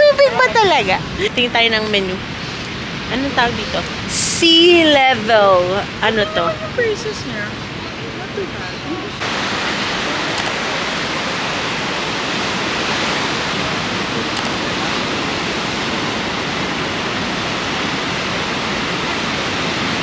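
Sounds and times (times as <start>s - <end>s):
ocean surf washing onto beach: 0.0s - 20.0s.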